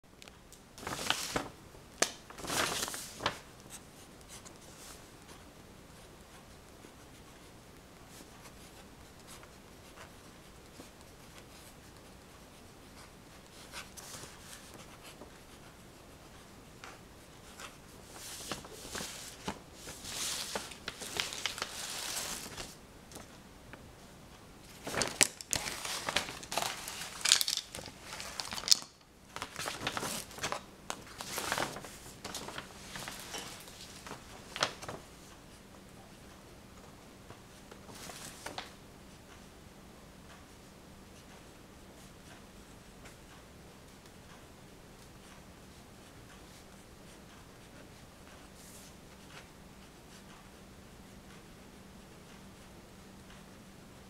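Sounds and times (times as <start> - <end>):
crinkling and rustling handling: 0.2 - 39.5.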